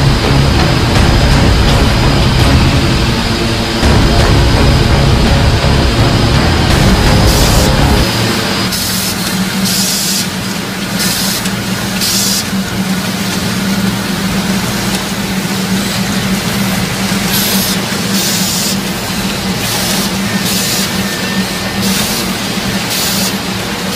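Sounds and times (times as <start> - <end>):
machine humming: 0.0 - 23.9
air hiss bursts: 7.2 - 10.4, 11.0 - 12.6, 17.3 - 18.9, 19.6 - 23.4.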